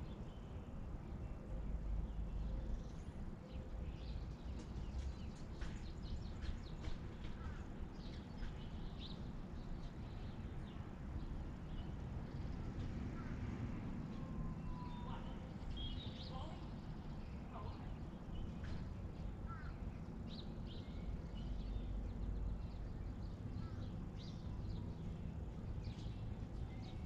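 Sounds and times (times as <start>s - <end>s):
birds chirping: 14.1s - 27.0s.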